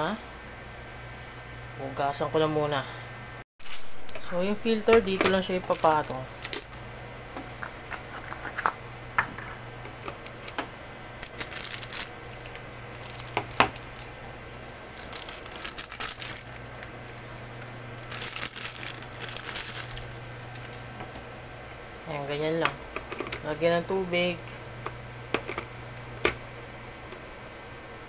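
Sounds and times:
low steady hum: 0.0s - 28.0s
plastic wrapping crinkling and tearing: 3.6s - 4.2s, 5.6s - 6.8s, 11.2s - 14.1s, 14.9s - 20.9s.

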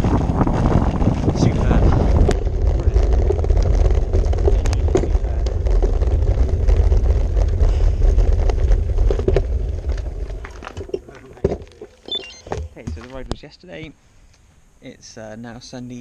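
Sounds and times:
wind rumbling over microphone: 0.0s - 11.8s
bike clicks and rattles: 0.0s - 13.2s.

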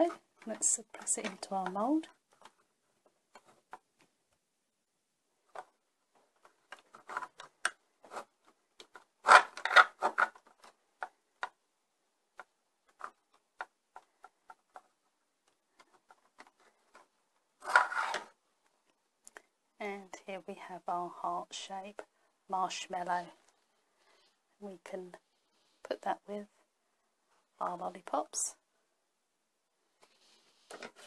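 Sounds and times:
soft clicks and rubs of handling: 30.0s - 31.0s.

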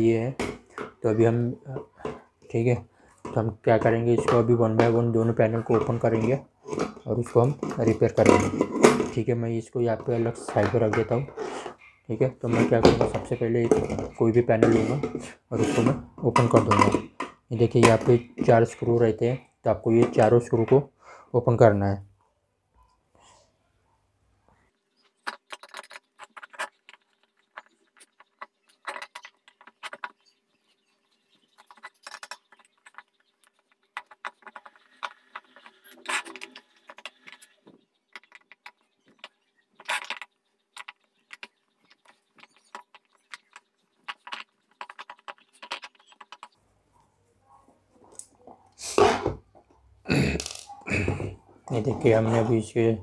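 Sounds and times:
screwdriver clicking and scraping: 33.9s - 37.6s.

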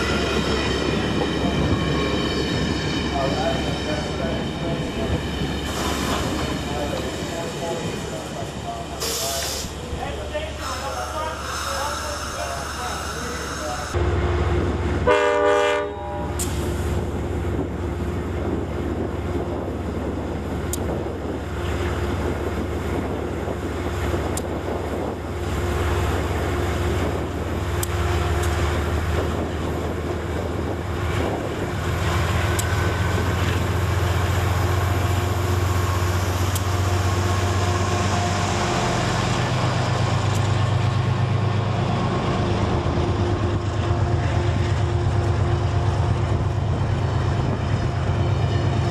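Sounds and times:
diesel locomotive engine droning: 0.0s - 48.9s
train horn blast: 15.0s - 16.4s
train wheels clicking: 31.2s - 37.2s, 38.6s - 41.2s.

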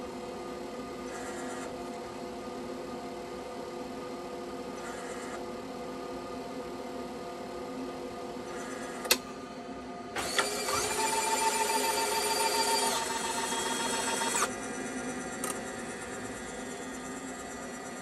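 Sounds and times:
motor whirring whine: 10.2s - 18.0s.

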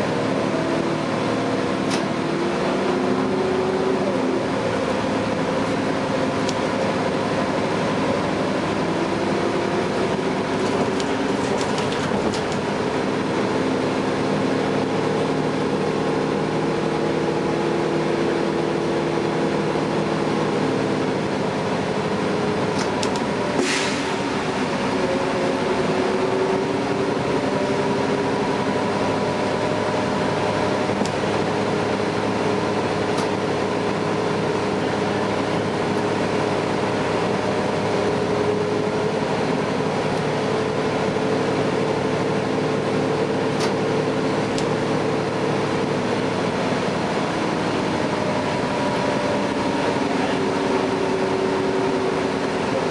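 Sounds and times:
bus drivetrain drone with whine: 0.0s - 52.9s
brief high hiss: 23.6s - 24.1s.

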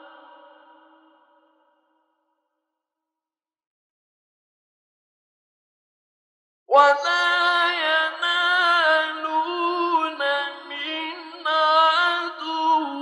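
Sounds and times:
man reciting melodically: 6.7s - 13.0s.

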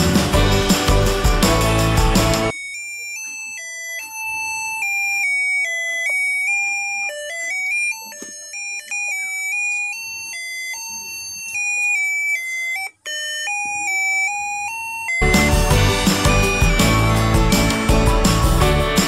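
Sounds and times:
electronic beeping melody: 0.3s - 19.0s.

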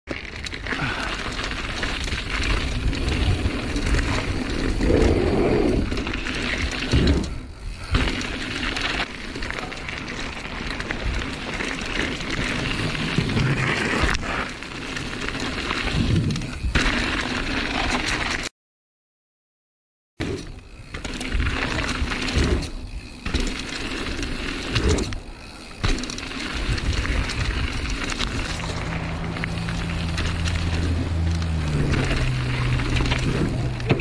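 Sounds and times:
bike tyres rolling on gravel: 0.1s - 18.5s, 20.3s - 34.0s.

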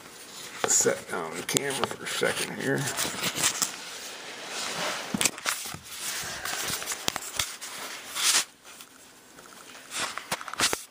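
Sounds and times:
camera handling rubbing: 1.4s - 3.8s
camera rustle: 4.6s - 10.9s.

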